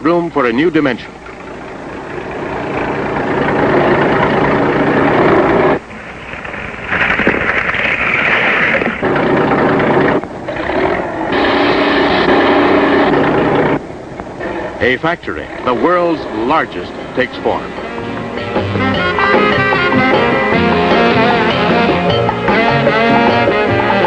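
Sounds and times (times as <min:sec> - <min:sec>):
heavy machinery engines running: 0:00.0 - 0:24.0.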